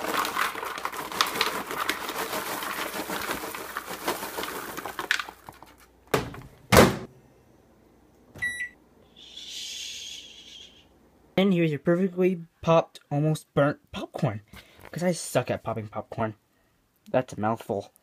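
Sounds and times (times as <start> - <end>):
popcorn rattling into plastic bowl: 0.0 - 5.9
microwave keypad beep: 8.4 - 8.8.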